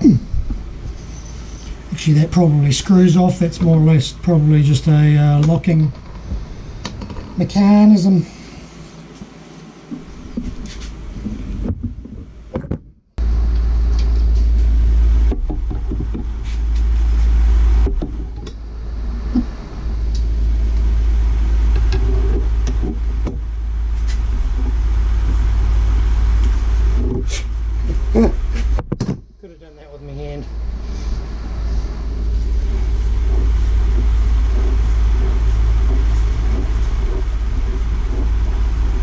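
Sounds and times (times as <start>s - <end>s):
fan air buffeting microphone: 0.0s - 39.0s
rag wiping rod: 30.5s - 39.0s.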